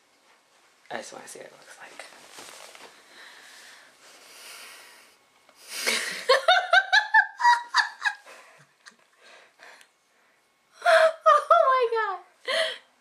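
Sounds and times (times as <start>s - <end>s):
faint breathing: 2.9s - 6.1s, 8.2s - 11.0s
woman laughing: 5.7s - 9.0s, 10.8s - 12.8s.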